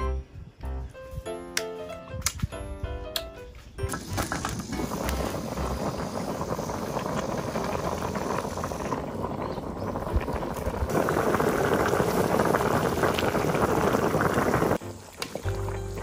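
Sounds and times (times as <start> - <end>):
water boiling in a pot: 3.9 - 16.0.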